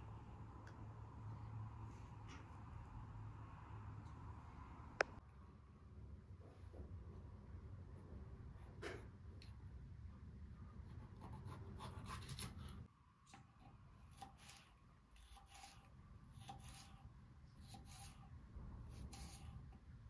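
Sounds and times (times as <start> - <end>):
rubbing and scraping strokes: 14.2 - 18.3, 18.9 - 19.8.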